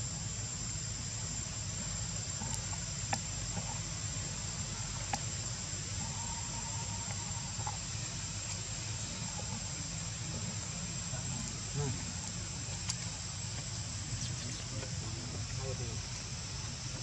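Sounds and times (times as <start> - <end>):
high-pitched insect drone: 0.0 - 17.0
low outdoor rumble: 0.0 - 17.0.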